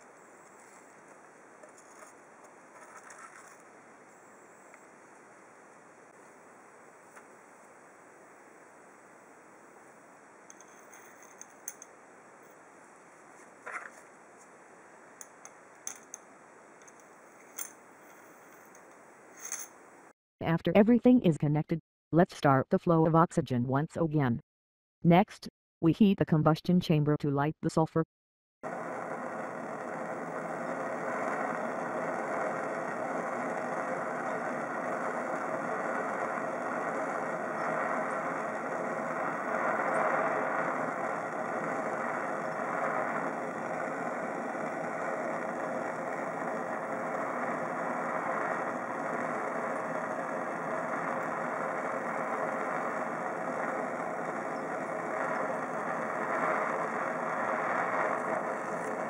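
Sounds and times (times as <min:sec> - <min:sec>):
gas torch flame hissing: 0:28.7 - 0:59.0.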